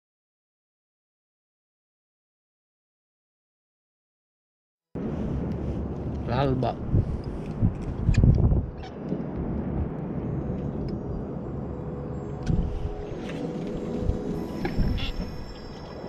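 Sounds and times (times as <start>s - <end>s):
wind on microphone: 5.0s - 16.0s
water moving around boat: 12.6s - 16.0s.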